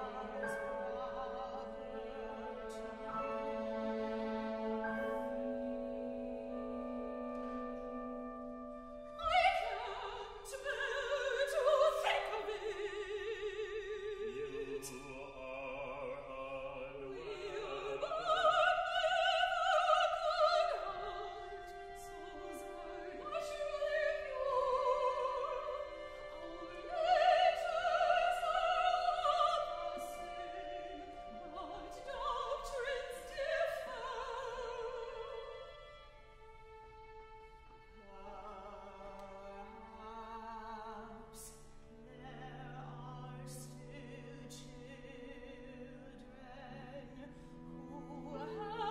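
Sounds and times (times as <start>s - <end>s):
operatic singing with vibrato: 0.0s - 6.7s, 8.9s - 48.9s
small instrumental ensemble: 0.0s - 10.5s.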